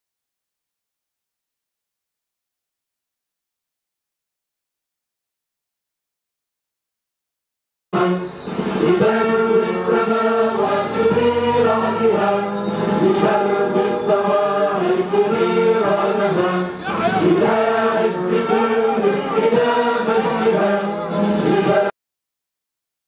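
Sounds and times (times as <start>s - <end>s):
choir singing: 8.0s - 22.0s.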